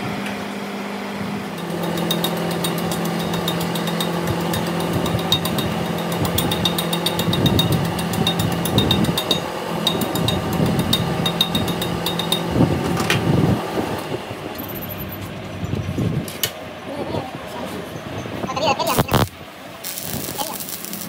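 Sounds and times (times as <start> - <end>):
steady machine hum: 0.0 - 21.0
rod tapping on metal weld: 1.6 - 12.5.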